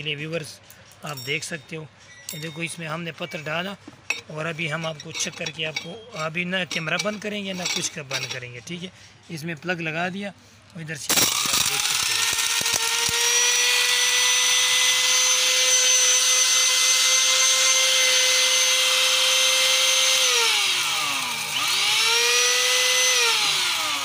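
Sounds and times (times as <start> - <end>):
grinder whining while pulverising stone: 11.1 - 24.0.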